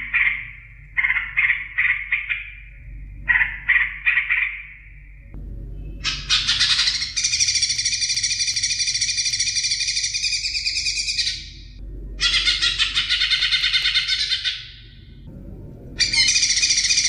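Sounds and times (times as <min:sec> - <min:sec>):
songbird trilling: 0:06.0 - 0:14.9, 0:16.0 - 0:17.0.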